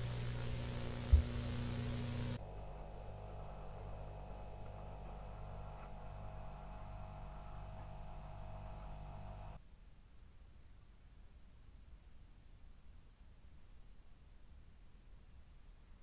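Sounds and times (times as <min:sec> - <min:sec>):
faint hiss: 0:00.0 - 0:02.4
electrical mains hum: 0:00.0 - 0:09.6.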